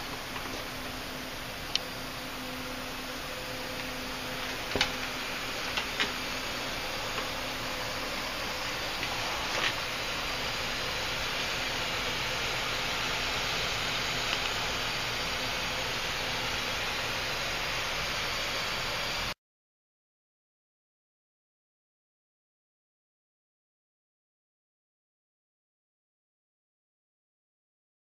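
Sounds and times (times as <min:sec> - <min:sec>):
steady rushing hiss: 0:00.0 - 0:19.4.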